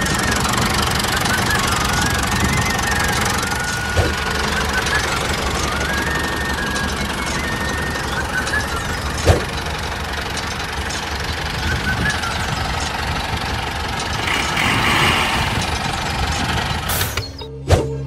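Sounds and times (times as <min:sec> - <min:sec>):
small motor rattling: 0:00.0 - 0:17.3
music: 0:01.2 - 0:09.8, 0:17.0 - 0:18.0.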